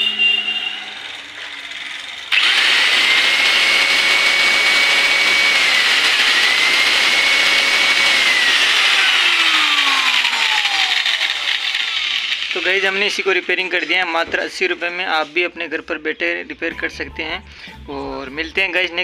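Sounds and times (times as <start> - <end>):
angle grinder whining: 0.0 - 14.0.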